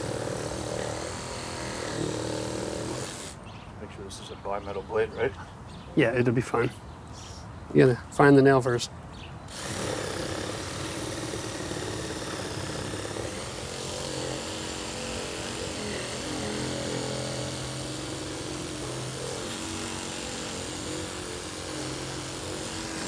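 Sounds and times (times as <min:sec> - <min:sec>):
reciprocating saw cutting metal: 0:00.0 - 0:03.4, 0:09.5 - 0:23.0.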